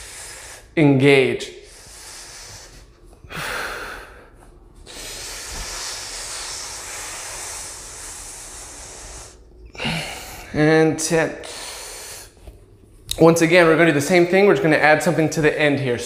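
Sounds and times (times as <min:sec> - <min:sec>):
deep breathing: 0:00.0 - 0:00.8, 0:01.4 - 0:12.8.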